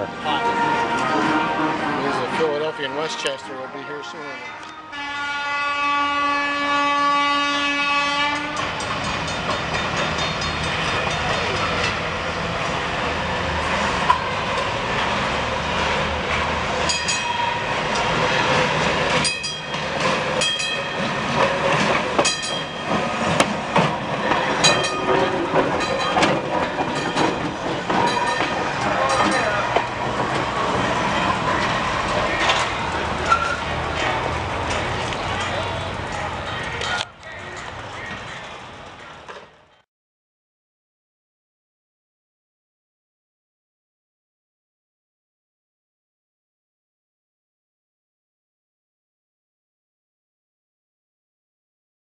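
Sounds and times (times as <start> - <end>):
horn-like tone: 0.0 - 8.6
streetcar rumble: 0.0 - 39.8
streetcar wheels clicking over rails: 8.3 - 39.8.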